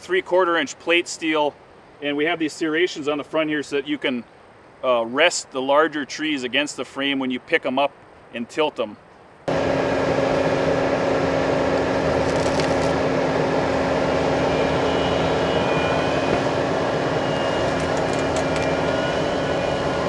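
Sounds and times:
diesel engine under load: 9.5 - 20.0
faint wood cracks: 12.1 - 13.0.

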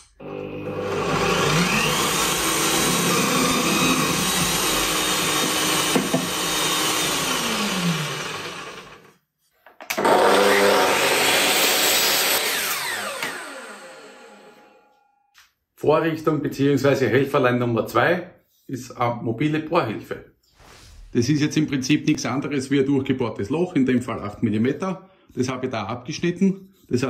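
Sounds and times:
mitre saw cutting: 0.0 - 9.2, 9.9 - 14.8
drill press boring wood: 0.2 - 9.1, 9.9 - 14.4.

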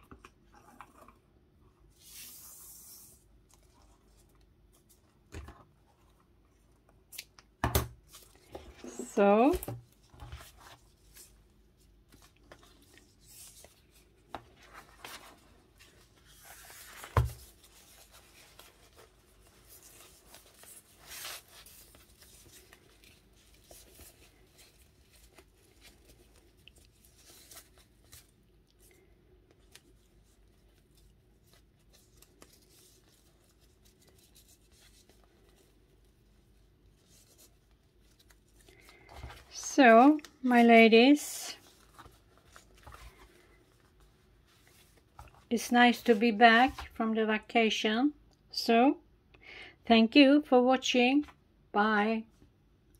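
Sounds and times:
paper journal rustling: 8.0 - 47.0.

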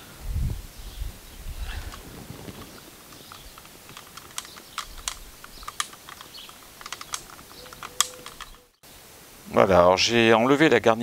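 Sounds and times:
light irregular clicks and taps: 2.6 - 8.7.

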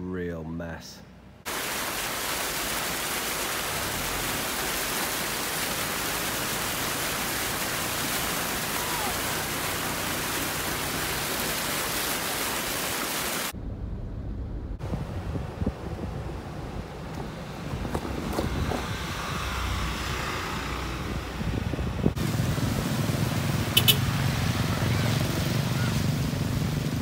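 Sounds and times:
floodwater rushing: 1.5 - 13.6, 16.3 - 27.0
low water rumble: 13.4 - 27.0.

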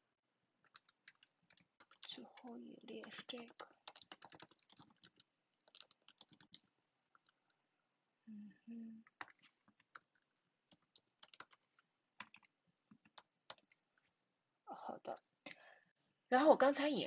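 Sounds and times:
keyboard typing clicks: 0.7 - 7.4, 9.0 - 11.6.

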